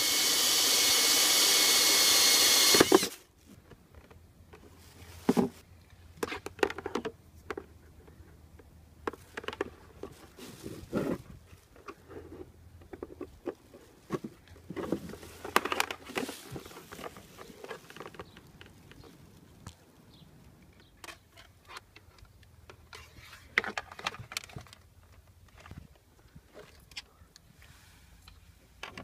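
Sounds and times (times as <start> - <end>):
plastic sheet rustling: 14.9 - 18.0.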